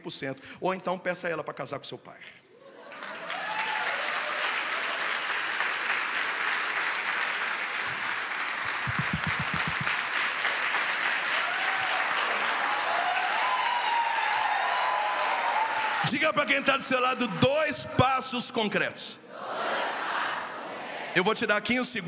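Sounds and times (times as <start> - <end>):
congregation applauding: 2.8 - 16.5.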